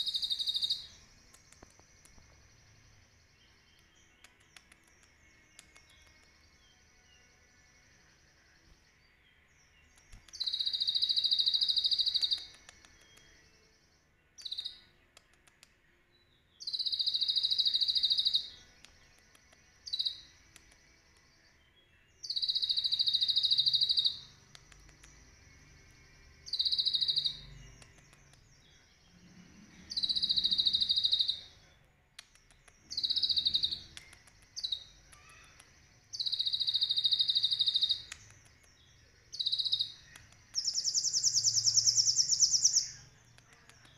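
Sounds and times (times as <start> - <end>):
bird singing high-pitched phrases: 0.0 - 15.2, 16.1 - 25.0, 25.6 - 43.9.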